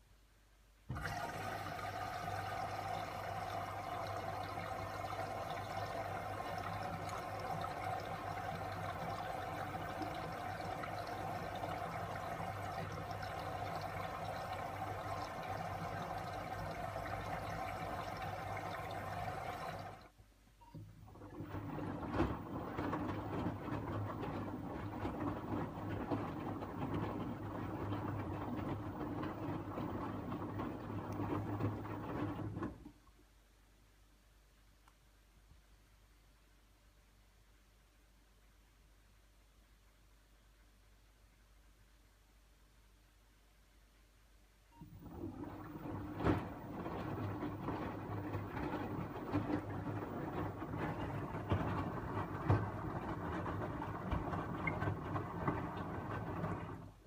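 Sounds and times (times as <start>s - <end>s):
washing machine drum tumbling: 0.9s - 20.0s, 20.8s - 32.9s, 44.8s - 57.0s
water rushing into washing machine: 0.9s - 20.1s, 20.8s - 33.0s, 44.8s - 57.0s.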